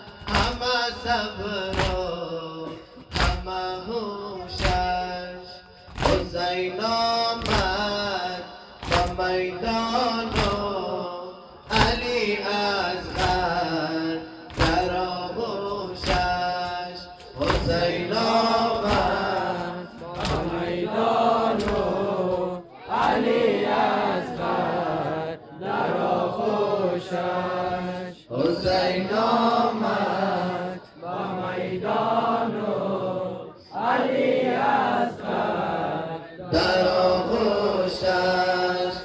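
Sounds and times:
men chanting a lament: 0.0 - 39.0
chest-beating slaps: 1.6 - 2.2, 3.0 - 3.6, 5.9 - 6.3, 8.8 - 9.4, 10.2 - 10.8, 13.1 - 13.6, 14.5 - 15.0, 15.9 - 20.7, 21.5 - 23.2.

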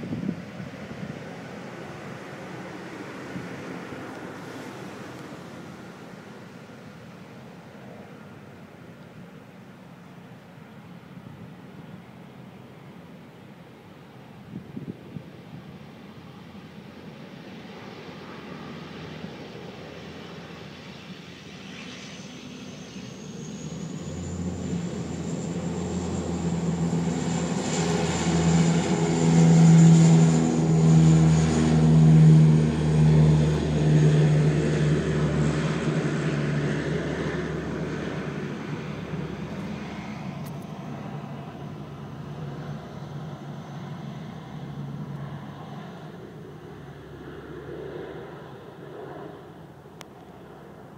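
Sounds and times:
propeller plane engine: 0.0 - 50.9.

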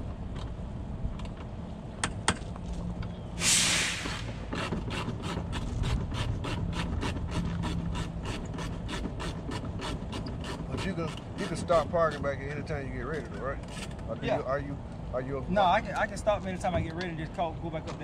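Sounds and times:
short loud hiss: 3.4 - 4.5.

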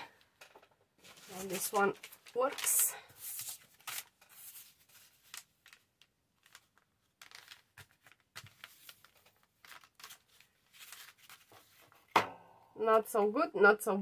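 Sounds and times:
cardboard and paper rustling: 1.0 - 12.1.

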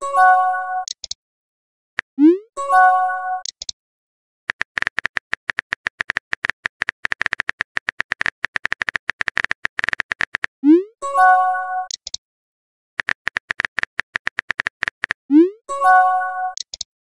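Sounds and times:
phone keyboard typing clicks: 0.8 - 1.2, 4.5 - 10.5, 11.9 - 12.2, 13.0 - 15.2, 16.5 - 16.9
message chime: 15.7 - 16.6.

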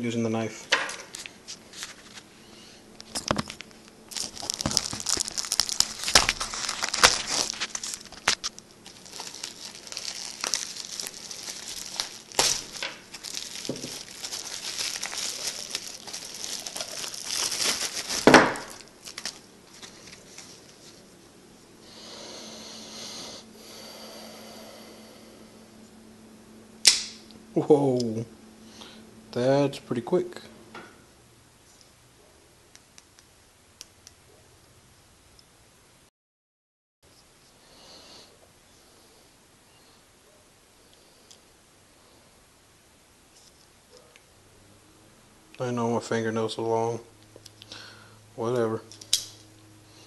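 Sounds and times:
plastic bag crinkling and tearing: 3.0 - 21.0
light handling of packaging: 3.0 - 21.2.

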